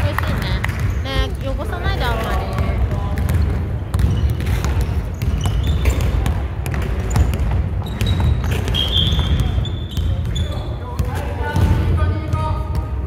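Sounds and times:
basketball bouncing: 0.0 - 12.0
shoe squeaks: 0.8 - 1.3, 3.4 - 6.2, 7.0 - 10.9.

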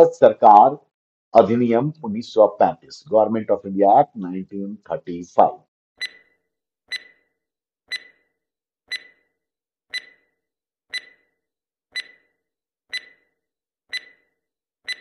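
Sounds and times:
stopwatch ticking: 6.0 - 6.2, 6.9 - 7.2, 7.9 - 8.2, 8.9 - 9.2, 9.9 - 10.3, 10.9 - 11.3, 11.9 - 12.3, 12.9 - 13.3, 13.9 - 14.3.

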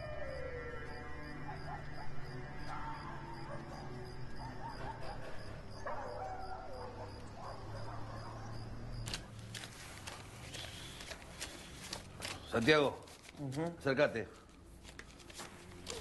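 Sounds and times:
banknotes rustling being counted: 8.7 - 16.0.

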